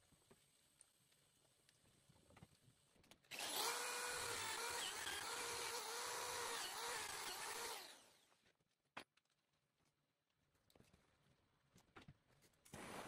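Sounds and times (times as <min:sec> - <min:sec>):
electric drill whining: 0:03.3 - 0:08.3.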